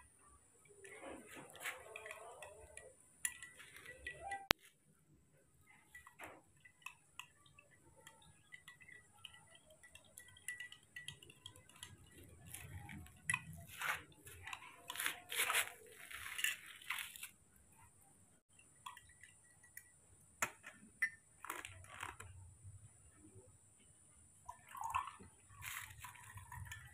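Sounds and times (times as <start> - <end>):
faint light clinks: 0.2 - 4.6, 5.6 - 17.9
soft rustling and crinkling: 0.6 - 4.9, 12.0 - 18.0, 25.4 - 26.9.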